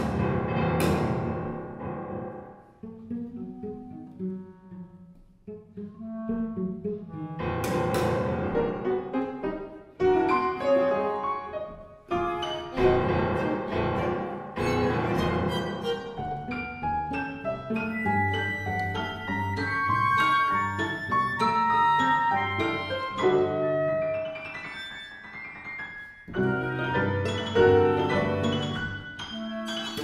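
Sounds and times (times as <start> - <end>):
cello: 0.0 - 25.6, 26.3 - 30.0
piano: 0.0 - 30.0
clarinet: 2.8 - 7.7, 8.5 - 25.6, 26.3 - 30.0
violin: 2.8 - 25.4, 26.3 - 30.0
flute: 17.7 - 25.3.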